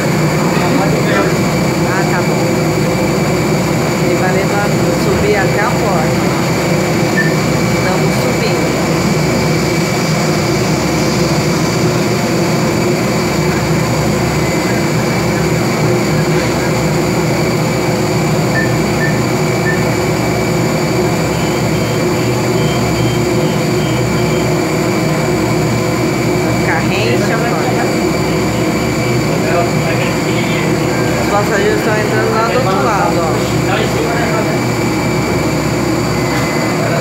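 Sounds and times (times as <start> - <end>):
lift drive mechanical drone: 0.0 - 37.0
short high beeps: 7.1 - 7.5.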